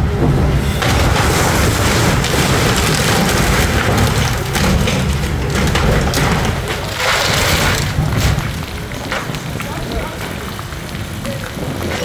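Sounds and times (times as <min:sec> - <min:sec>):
excavator engine running: 0:00.0 - 0:09.4
crackling and crunching wood: 0:00.0 - 0:12.0.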